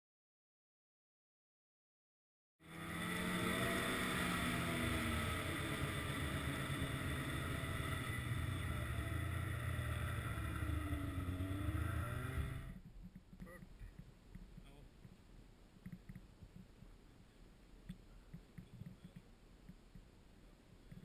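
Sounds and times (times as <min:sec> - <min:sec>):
snowmobile engine running: 0:02.6 - 0:12.8.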